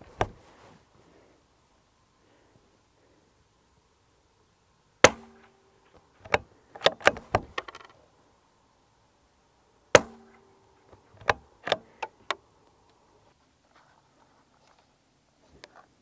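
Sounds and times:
rifle bolt metallic clicks: 11.2s - 12.4s.

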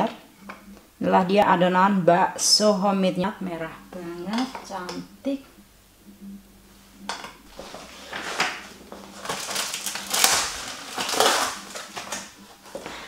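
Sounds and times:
faint steady hum: 0.0s - 13.0s
rustling and scraping of utensils: 7.0s - 13.0s.

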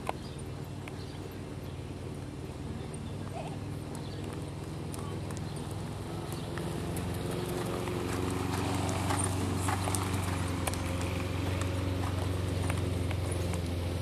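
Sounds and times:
steady low hum: 0.0s - 14.0s
horse hoofbeats on sand: 2.9s - 14.0s.

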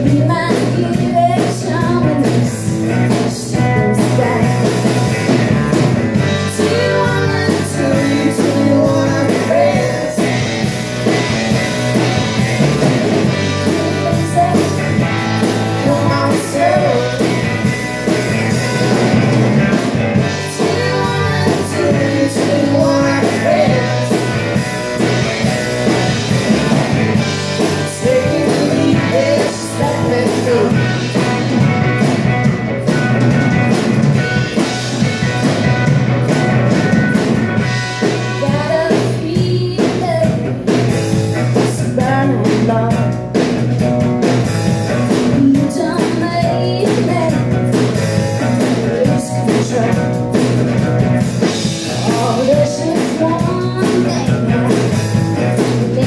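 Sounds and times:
woman singing: 0.0s - 4.9s, 6.2s - 10.4s, 13.6s - 17.5s, 20.2s - 24.4s, 27.6s - 30.9s, 38.2s - 40.6s, 41.6s - 43.2s, 45.2s - 50.2s, 52.0s - 56.0s
drum kit: 0.0s - 56.0s
electric bass: 0.0s - 56.0s
electric guitar: 0.0s - 56.0s.

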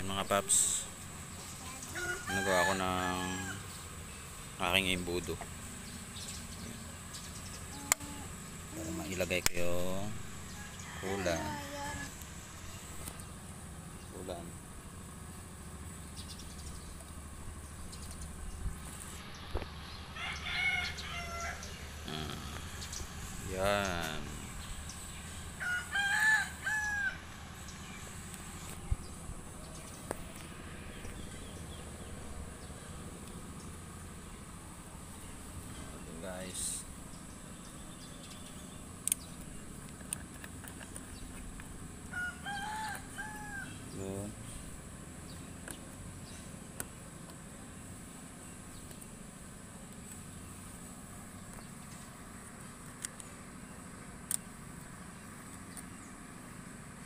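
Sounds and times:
engine idling: 0.0s - 57.0s
low background hum: 0.0s - 57.0s
rooster crowing: 1.9s - 3.8s, 10.3s - 12.2s, 20.1s - 22.4s, 25.4s - 27.4s, 42.0s - 44.0s.

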